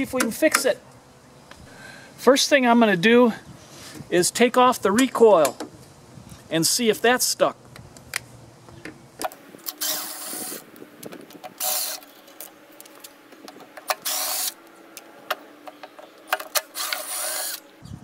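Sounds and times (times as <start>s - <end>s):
cordless drill motor running: 9.4s - 17.9s.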